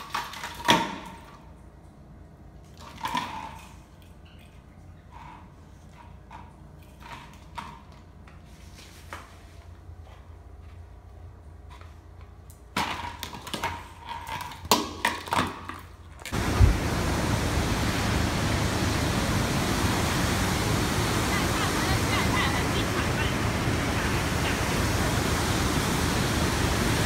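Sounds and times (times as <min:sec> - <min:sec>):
loud steady rushing noise: 0:16.4 - 0:27.0.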